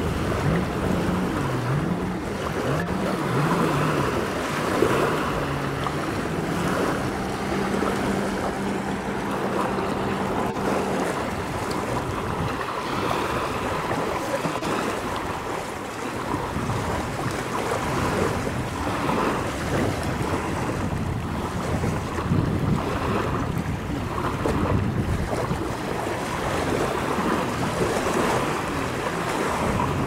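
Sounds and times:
choppy lake water: 0.0 - 30.0
distant jet ski engine droning: 0.0 - 30.0
wind buffeting microphone: 0.0 - 30.0.

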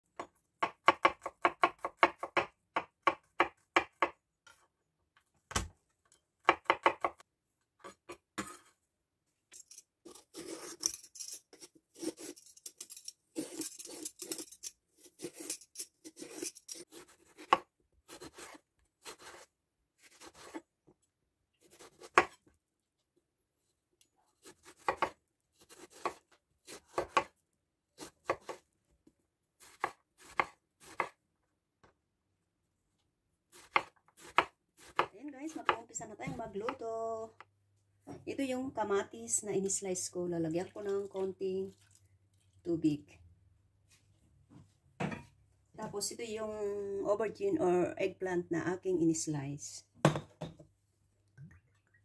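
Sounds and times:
knife chopping on wooden board: 0.2 - 4.2, 6.4 - 7.2, 16.2 - 19.4, 21.7 - 22.4, 24.5 - 27.4, 28.0 - 28.6, 29.7 - 31.2, 33.6 - 36.5.

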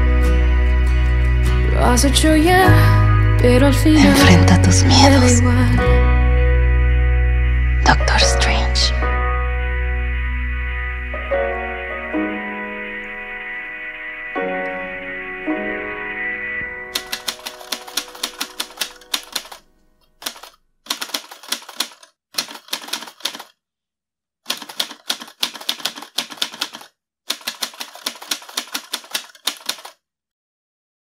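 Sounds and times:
typewriter keys clacking: 17.0 - 19.6, 20.2 - 23.5, 24.5 - 30.0.

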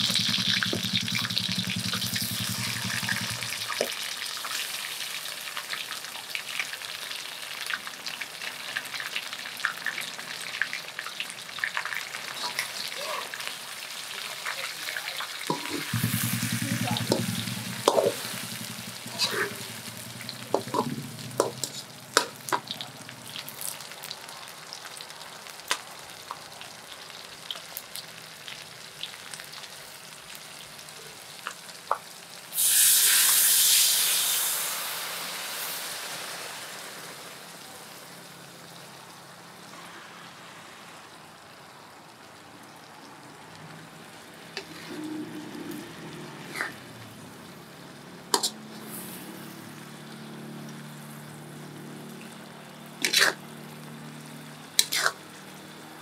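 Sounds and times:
loud sudden sizzle: 0.0 - 8.2, 11.8 - 26.1, 32.4 - 42.3, 43.8 - 56.0
prawns frying in a wok: 0.0 - 56.0
metal spatula scraping a pan: 12.3 - 13.0, 15.5 - 22.6, 48.4 - 49.2, 53.0 - 53.4, 54.8 - 55.2.

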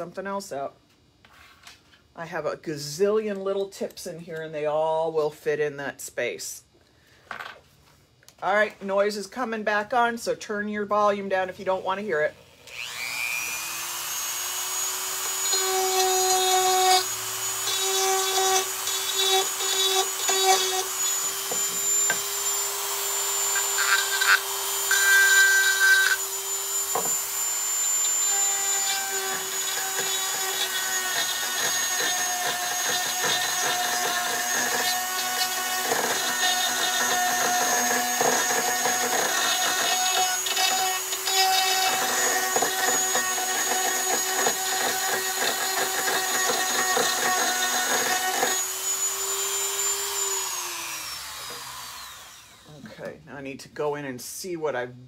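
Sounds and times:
rotary tool motor whine: 12.4 - 52.7
grinding on wood: 14.2 - 49.0.

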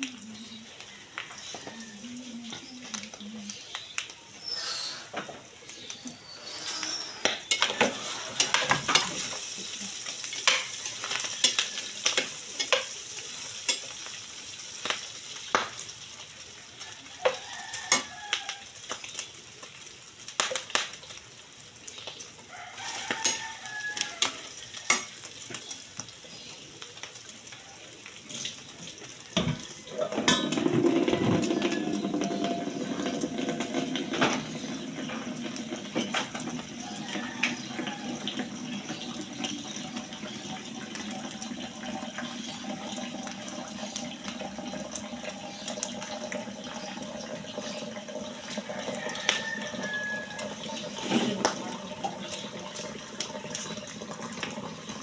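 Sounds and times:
meat sizzling in a pan: 0.0 - 55.0
utensil scraping a pan: 6.3 - 9.4, 50.8 - 51.4.

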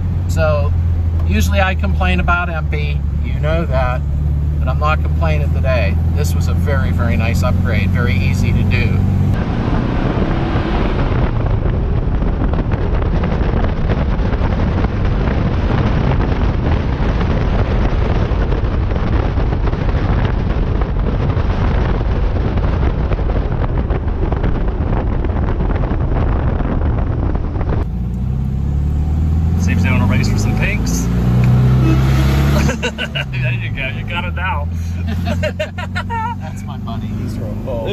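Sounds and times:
car hum from cabin: 0.0 - 37.9
road and tyre noise: 0.0 - 37.9
wind buffeting microphone: 8.0 - 37.9.

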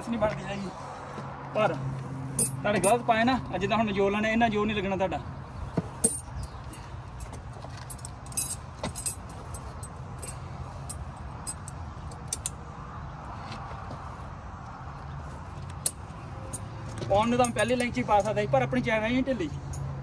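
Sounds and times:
steel chain clinking and rattling: 2.3 - 3.0, 6.0 - 12.5, 15.8 - 18.4.

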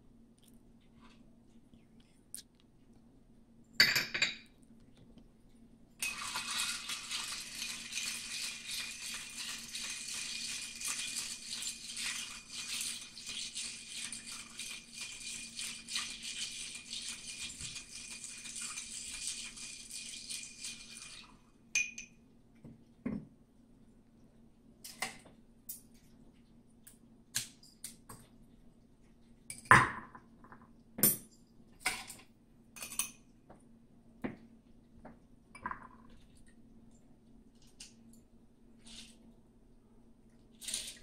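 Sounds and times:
ice cubes clinking in a glass: 6.0 - 12.8.

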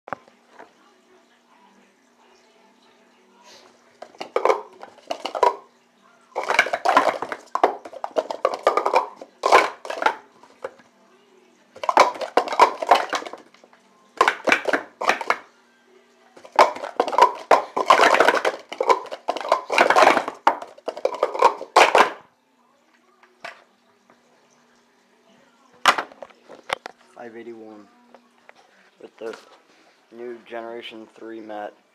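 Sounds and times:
plastic cups clattering: 4.0 - 5.7, 6.4 - 10.8, 11.8 - 15.5, 16.4 - 22.3, 25.8 - 26.9.

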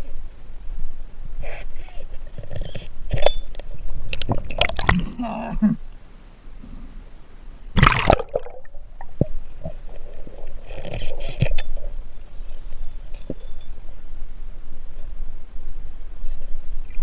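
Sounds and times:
water splash: 4.2 - 5.2, 7.8 - 11.0
bubbling hiss: 7.8 - 12.2
muffled underwater rumble: 8.5 - 17.0.

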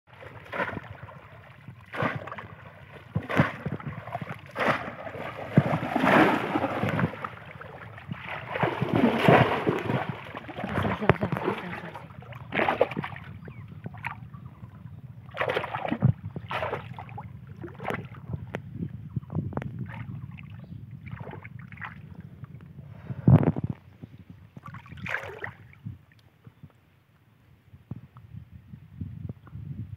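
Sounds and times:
muddy water splashing: 0.1 - 18.3, 19.8 - 22.0, 24.6 - 25.8
water churning and sloshing: 0.1 - 18.6, 19.7 - 22.6, 24.5 - 26.2
low rumble: 0.2 - 24.7
loud sudden splash: 4.5 - 7.3, 8.4 - 11.0.

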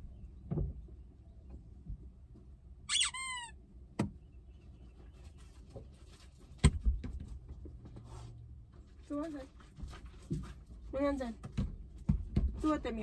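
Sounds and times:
high squeak falling in pitch: 2.9 - 3.6.

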